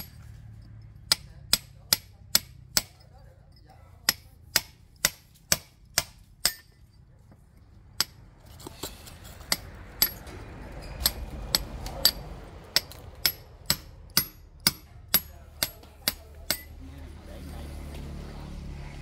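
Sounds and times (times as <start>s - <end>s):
hammer striking brick: 1.0s - 3.1s, 4.0s - 6.9s, 9.4s - 10.3s, 10.9s - 16.7s
rustling scraping noise: 8.4s - 9.5s.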